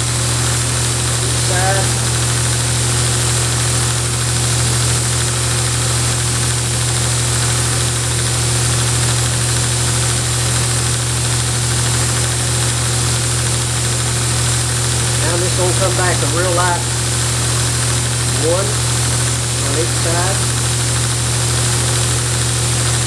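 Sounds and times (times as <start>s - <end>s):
belt grinder motor humming: 0.0s - 23.0s.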